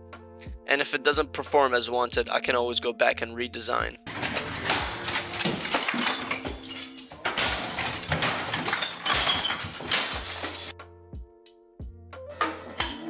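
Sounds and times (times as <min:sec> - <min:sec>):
bottles and cans clinking: 0:04.1 - 0:10.7, 0:12.4 - 0:13.0
things crashing on a desk: 0:04.1 - 0:10.7.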